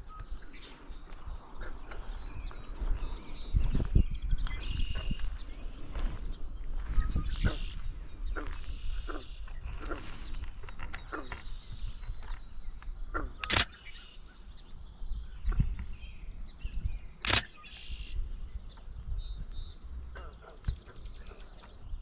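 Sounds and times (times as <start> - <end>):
small birds chirping: 0.0 - 22.0
camera shutter bursts: 13.4 - 13.8, 17.2 - 17.6.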